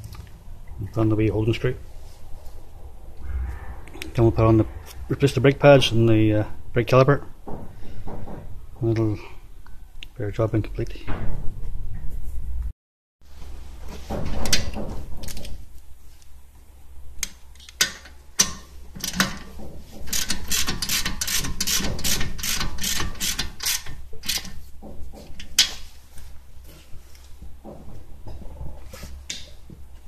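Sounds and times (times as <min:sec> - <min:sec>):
ratchet wrench clicking: 0:20.1 - 0:24.5.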